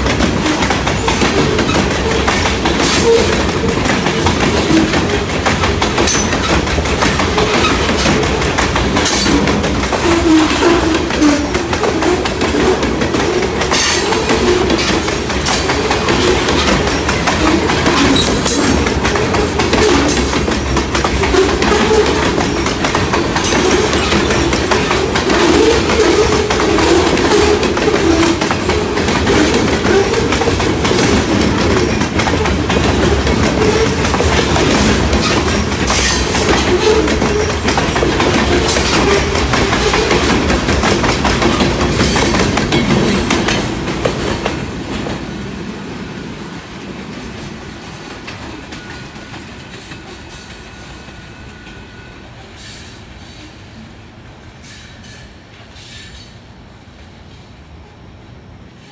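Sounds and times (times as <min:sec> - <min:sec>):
wheels clattering over rail joints: 0:00.0 - 0:45.3
train cars rumbling past: 0:00.0 - 0:58.9.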